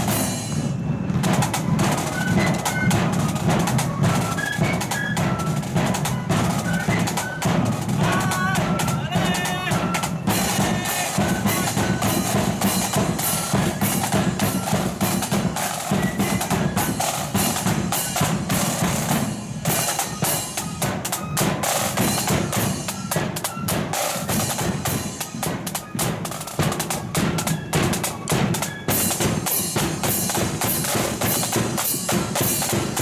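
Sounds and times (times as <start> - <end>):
flute melody: 0.0 - 33.0
snare drum rolls: 0.0 - 33.0
steady bass drum beat: 7.6 - 15.6.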